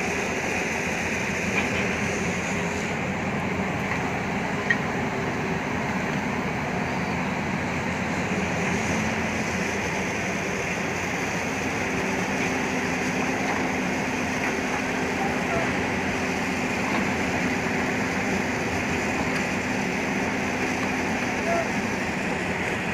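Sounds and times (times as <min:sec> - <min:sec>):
excavator diesel engine running: 0:00.0 - 0:22.9.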